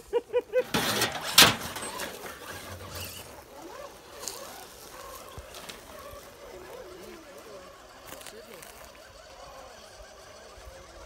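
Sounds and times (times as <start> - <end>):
faint voices talking: 3.2 - 11.0.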